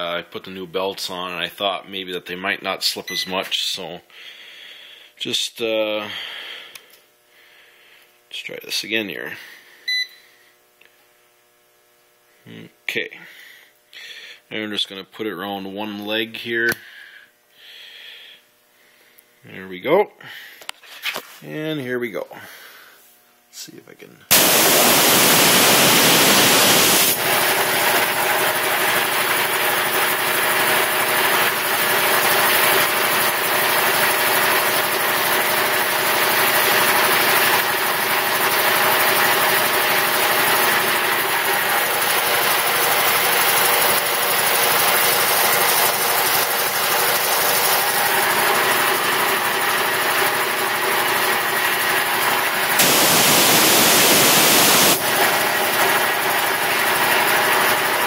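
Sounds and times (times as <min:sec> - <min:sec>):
air compressor running: 0:24.3 - 0:58.0.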